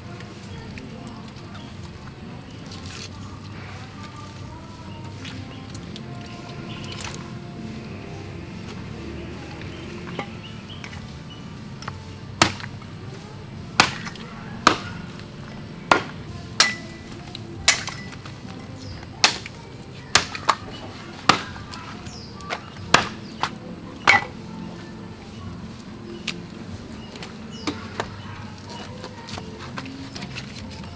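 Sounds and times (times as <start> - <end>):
heavy blade chopping meat: 12.4 - 12.7, 13.8 - 15.0, 15.9 - 17.0, 21.2 - 21.6, 22.9 - 23.5.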